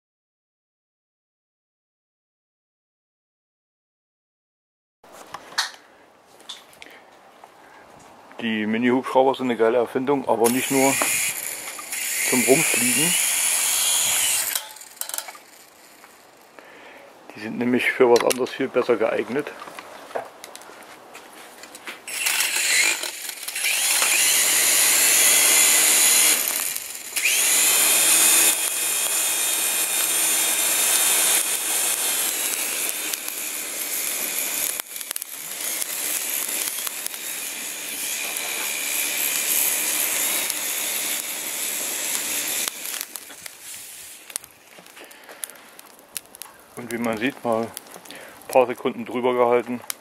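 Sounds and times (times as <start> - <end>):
small rotor whirring: 10.5 - 16.3, 22.1 - 44.4.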